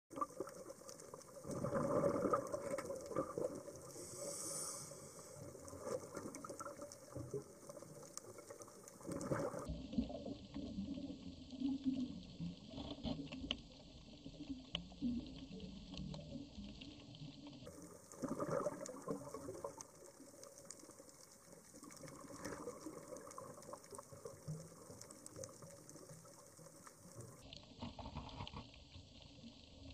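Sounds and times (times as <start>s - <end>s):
underwater clicks and crackles: 0.1s - 29.9s
bubbling hissing underwater background: 1.6s - 9.7s.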